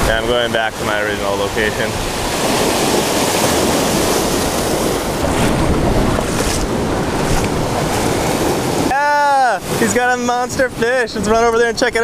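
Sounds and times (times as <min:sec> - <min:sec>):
surf over rocks: 0:00.0 - 0:12.0
wind buffeting microphone: 0:00.0 - 0:12.0
feet wading through water: 0:02.3 - 0:08.9.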